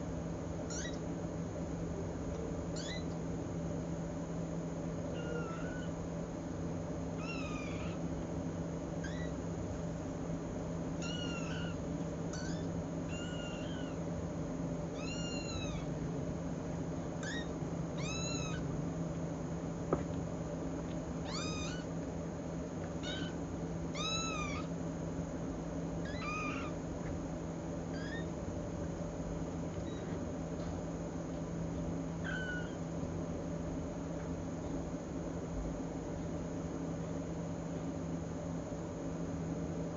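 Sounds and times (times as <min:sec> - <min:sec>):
steady low hum: 0:00.0 - 0:39.9
kittens meowing: 0:00.7 - 0:01.0, 0:02.7 - 0:03.2, 0:05.1 - 0:06.0, 0:07.2 - 0:08.0, 0:09.0 - 0:09.4, 0:11.0 - 0:14.1, 0:14.9 - 0:16.0, 0:17.2 - 0:18.7, 0:21.2 - 0:22.0, 0:23.0 - 0:24.8, 0:26.0 - 0:26.8, 0:27.9 - 0:28.4, 0:29.8 - 0:30.2, 0:32.2 - 0:32.9.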